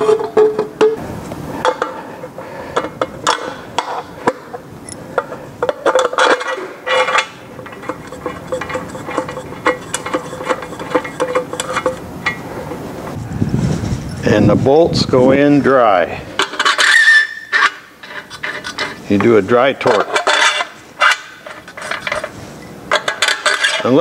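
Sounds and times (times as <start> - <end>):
metal bolts clicking and clinking: 2.8 - 12.8, 16.4 - 24.0.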